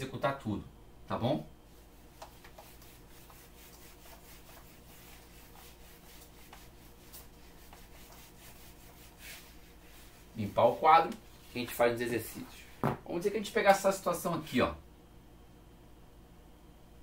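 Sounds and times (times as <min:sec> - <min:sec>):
eraser rubbing whiteboard: 0:01.7 - 0:12.0.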